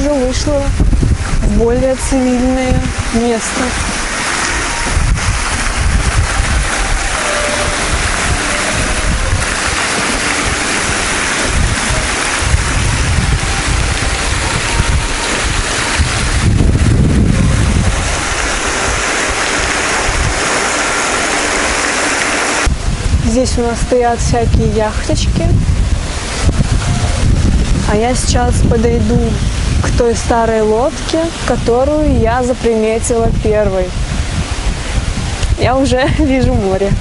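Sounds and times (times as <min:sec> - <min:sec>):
fountain water splashing: 0:00.0 - 0:37.0
wind on microphone: 0:00.0 - 0:37.0.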